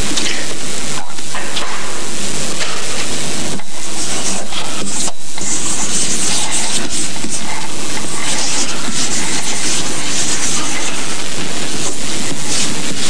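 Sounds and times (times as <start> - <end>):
loud constant hiss: 0.0 - 13.0
chalk scratching on blackboard: 3.8 - 13.0.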